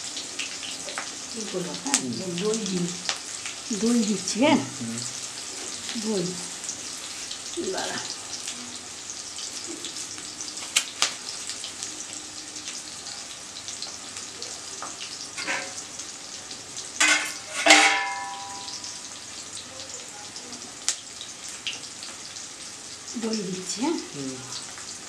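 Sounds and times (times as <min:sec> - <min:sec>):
vegetables sizzling in hot oil: 0:00.0 - 0:25.0
utensil clattering on pan: 0:15.3 - 0:15.8, 0:17.0 - 0:19.0.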